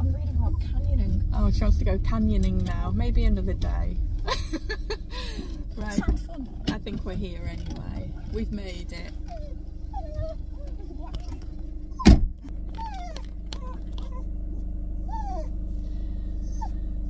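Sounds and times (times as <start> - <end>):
idling car hum: 0.0 - 17.0
dog whining: 9.1 - 15.6, 16.4 - 17.0.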